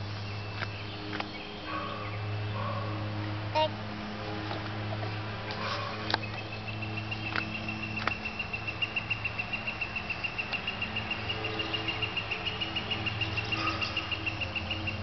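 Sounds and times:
high pulsing chirping: 6.2 - 15.0.

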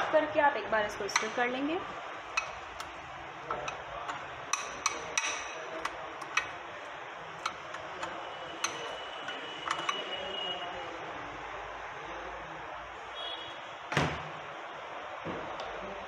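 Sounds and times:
spoon clinking against glass bowl: 7.4 - 10.3.

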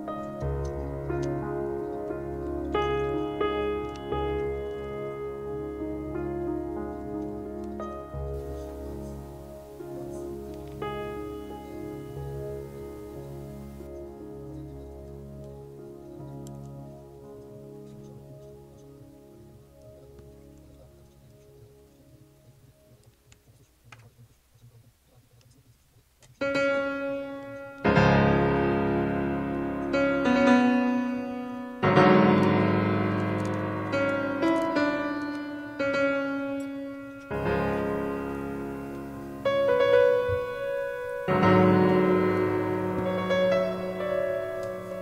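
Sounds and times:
piano chords: 0.0 - 23.4, 26.4 - 45.0
faint clicks: 6.8 - 26.6.

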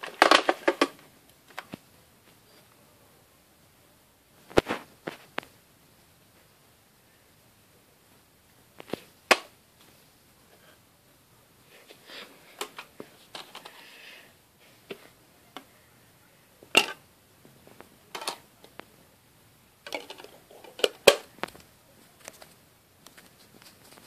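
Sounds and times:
cd player handling clicks and rustling: 0.0 - 1.8, 12.6 - 13.8, 18.1 - 18.8, 19.9 - 22.4.

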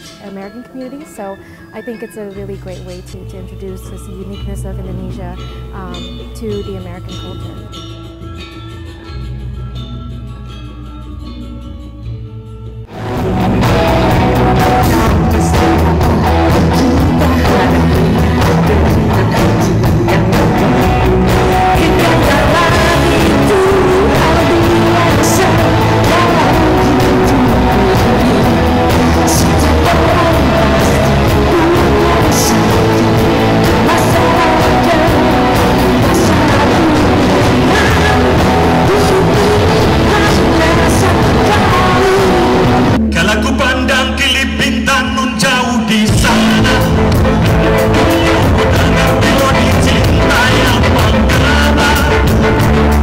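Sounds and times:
woman singing lead: 0.0 - 7.8, 13.4 - 43.3
rock band playing live: 12.9 - 43.6, 44.6 - 53.0.

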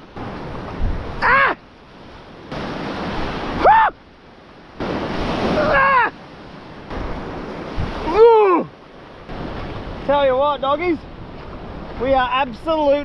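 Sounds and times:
wind on microphone: 0.0 - 1.4, 6.9 - 10.4
surf washing over rocks: 0.0 - 13.0.

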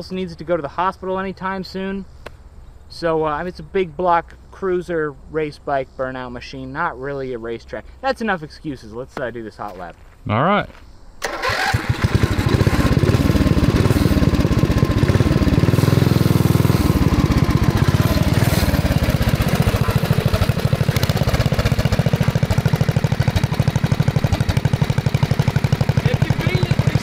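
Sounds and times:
engine idling and revving: 11.2 - 27.0.

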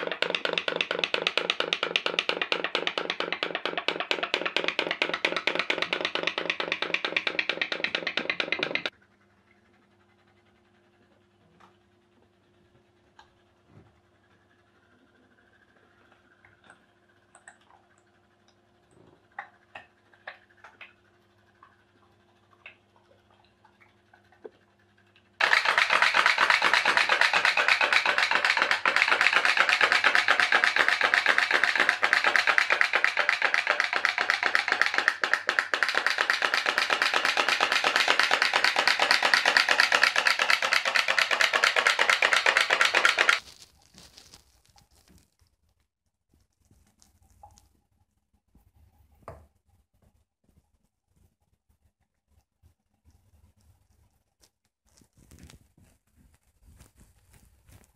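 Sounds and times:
steam boat popping: 0.0 - 8.9, 25.4 - 43.4.

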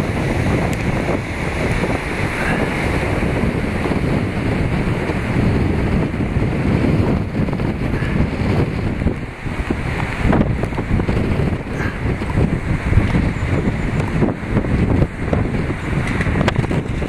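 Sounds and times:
river rushing: 0.0 - 17.0
wind buffeting microphone: 0.0 - 17.0.

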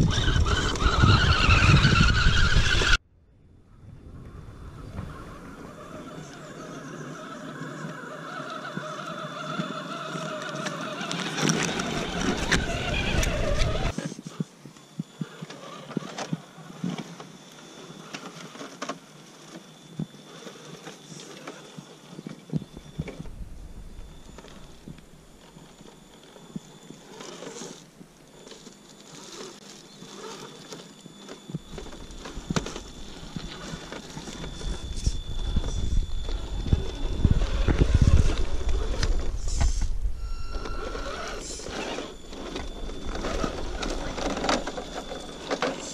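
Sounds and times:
electric motor whining: 0.0 - 3.0, 5.0 - 14.1, 22.6 - 45.9.

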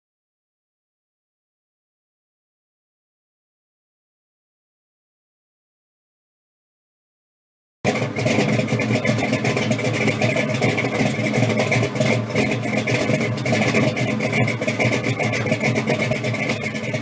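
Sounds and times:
car engine idling: 7.9 - 17.0.

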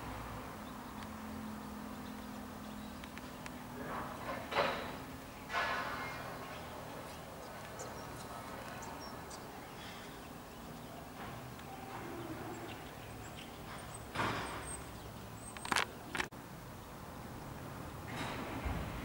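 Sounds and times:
sharp clicks: 3.0 - 3.6.

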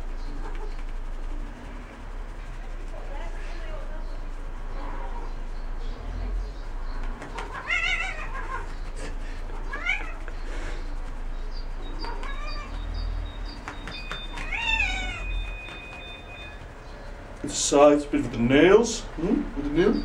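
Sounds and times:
cat meowing: 7.3 - 8.8, 9.5 - 10.3, 12.0 - 13.0, 14.2 - 16.6.

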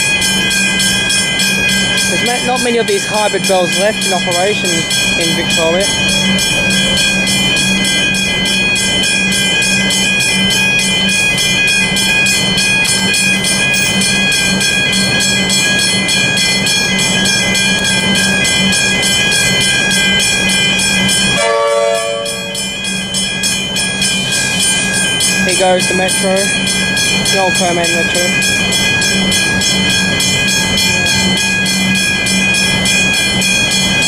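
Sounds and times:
level crossing bells ringing: 0.0 - 34.0
low horn-like tone: 21.4 - 22.5.

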